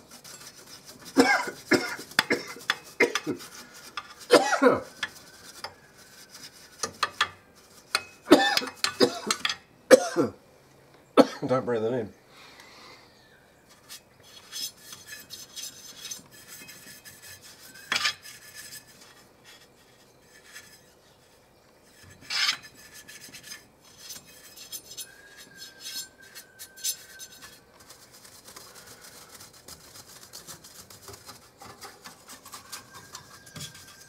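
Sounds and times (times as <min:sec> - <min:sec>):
paintbrush bristles rasping: 0:00.0 - 0:08.9, 0:13.7 - 0:34.0.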